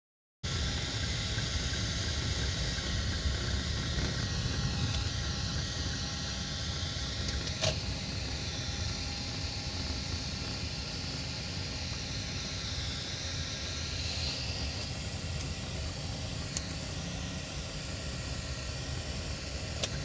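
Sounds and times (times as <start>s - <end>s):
car engine and road noise: 0.8s - 13.0s.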